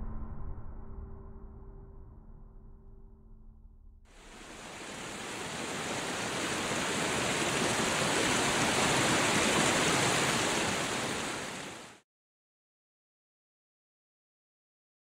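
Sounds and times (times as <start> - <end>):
river water rushing over rocks: 4.2 - 12.0.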